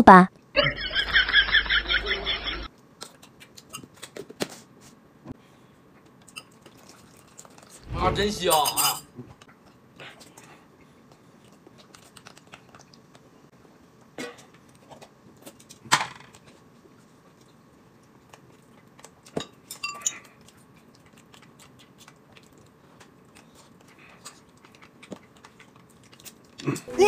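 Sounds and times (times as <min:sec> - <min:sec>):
faint chewing: 0:02.7 - 0:05.0, 0:05.8 - 0:07.9, 0:09.2 - 0:26.9
dishes and utensils clinking: 0:08.5 - 0:09.1, 0:19.3 - 0:20.3.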